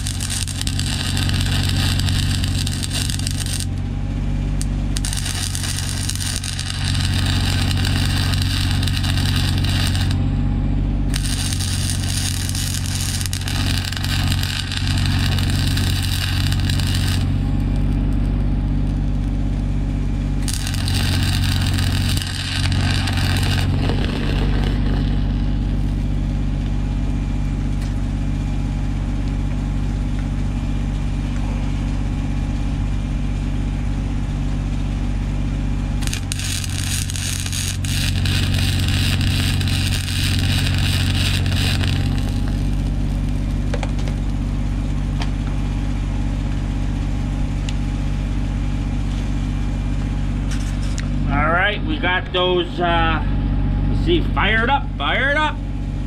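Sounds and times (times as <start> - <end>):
welding arc crackling: 0.0 - 10.2, 11.0 - 28.1, 34.4 - 51.2
engine hum: 0.0 - 56.0.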